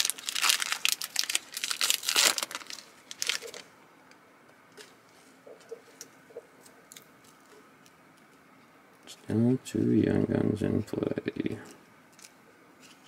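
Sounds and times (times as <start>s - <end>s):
foil wrapper crinkling: 0.0s - 3.7s.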